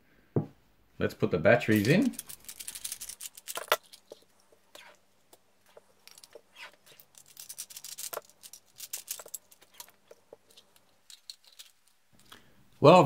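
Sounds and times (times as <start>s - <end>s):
batteries clicking into compartment: 1.7s - 5.0s, 5.7s - 12.4s.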